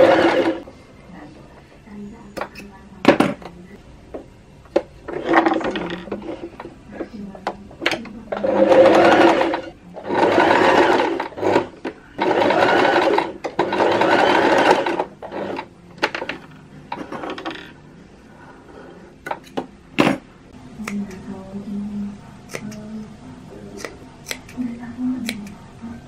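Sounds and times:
sewing machine stitching: 0.0s - 0.6s, 5.1s - 6.6s, 7.9s - 17.6s.

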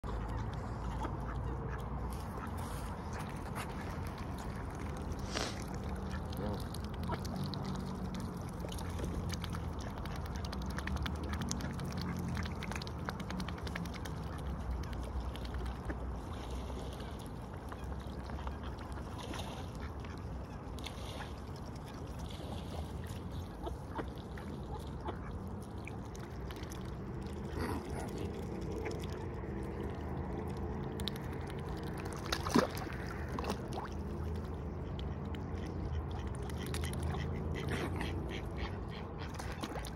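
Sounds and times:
swan calling softly: 0.1s - 7.4s.

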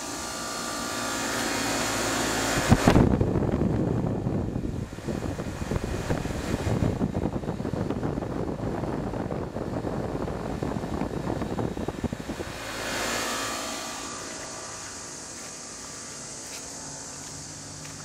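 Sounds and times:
air conditioner fan running: 0.0s - 18.0s
wind buffeting microphone: 2.4s - 15.6s.

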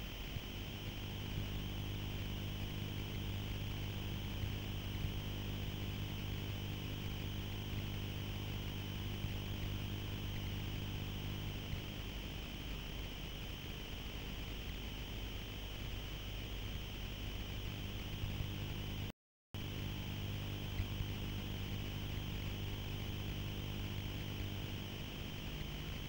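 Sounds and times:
low mechanical motor hum: 0.0s - 26.0s.

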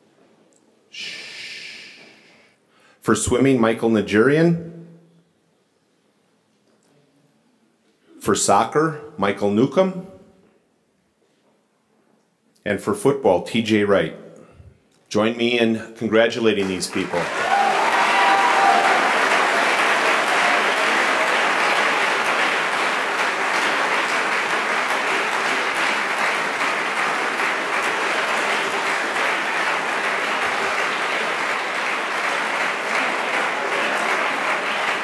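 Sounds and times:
audience applauding: 16.6s - 35.0s.

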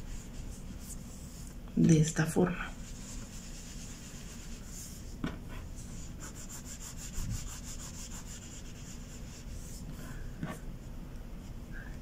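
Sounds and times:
fingertip rubbing paint into foam: 2.8s - 10.0s.

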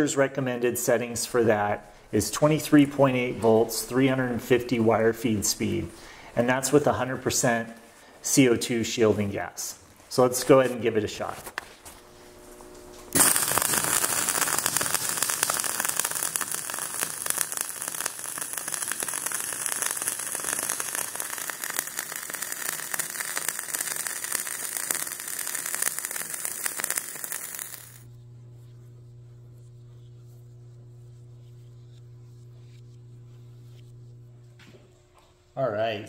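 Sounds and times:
arc welding crackle: 11.9s - 35.1s.

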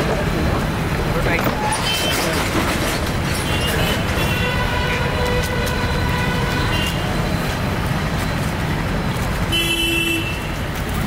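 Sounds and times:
road traffic rumble: 0.0s - 11.0s
vehicle horn long tone: 3.6s - 7.2s, 9.5s - 10.6s.

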